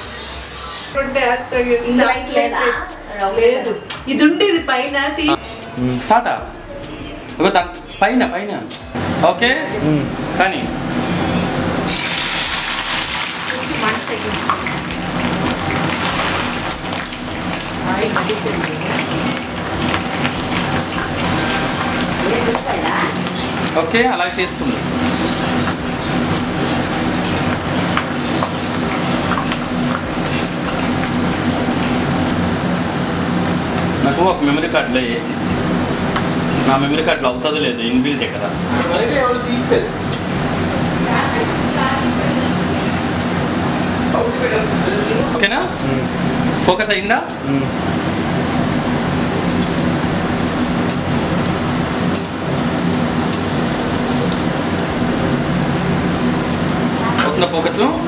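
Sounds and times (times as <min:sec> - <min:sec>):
low steady hum: 0:00.0 - 0:58.0
food sizzling and crackling: 0:09.8 - 0:58.0
onions sizzling in hot oil: 0:11.9 - 0:33.5
sharp ticks: 0:50.8 - 0:54.3.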